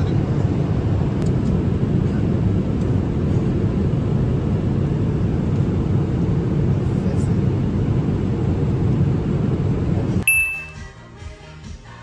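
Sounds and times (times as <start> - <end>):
airliner cabin engine rumble: 0.0 - 10.2.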